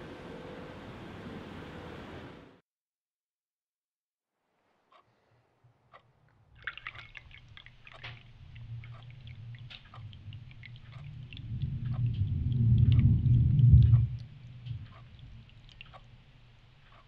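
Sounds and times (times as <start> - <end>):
drips: 6.3 - 17.0
liquid pouring into cup: 6.6 - 13.2
low rumbling drone: 8.0 - 16.8.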